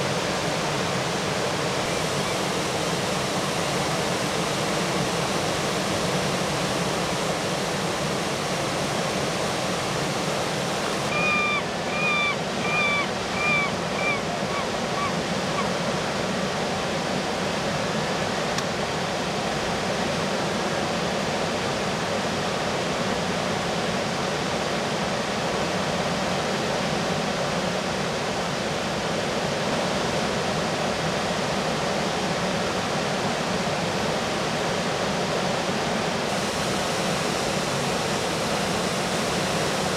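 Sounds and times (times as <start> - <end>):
river rapids roaring: 0.0 - 39.9
gull calling: 11.0 - 15.8.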